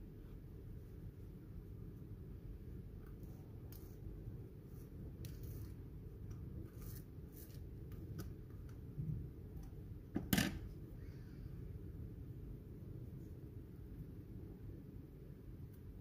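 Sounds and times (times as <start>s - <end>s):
low steady hum: 0.0s - 16.0s
butter knife scraping bread crust: 6.6s - 7.7s.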